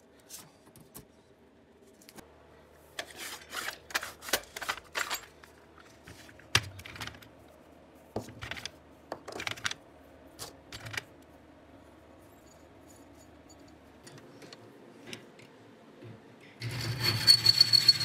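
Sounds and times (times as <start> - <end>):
small parts clattering in drawer: 3.0 - 7.2.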